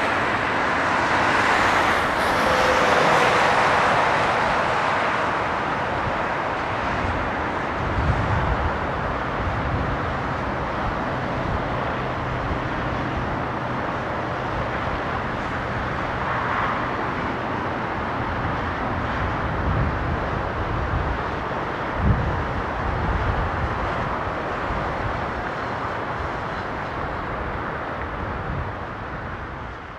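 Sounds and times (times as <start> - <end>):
jet engine roar: 0.0 - 9.4.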